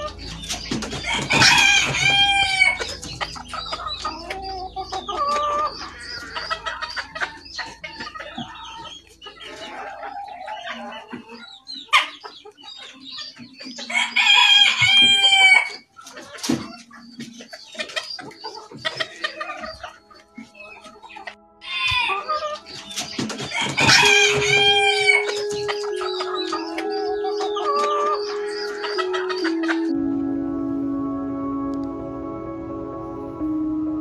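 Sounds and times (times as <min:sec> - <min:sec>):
chickens clucking: 0:00.0 - 0:30.4
rooster crowing: 0:01.0 - 0:02.8, 0:13.9 - 0:15.8, 0:23.5 - 0:30.0.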